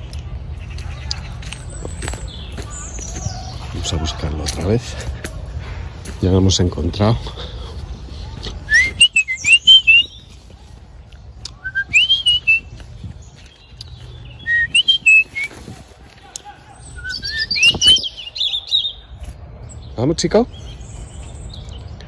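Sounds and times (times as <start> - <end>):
person whistling short phrases: 8.7 - 10.0.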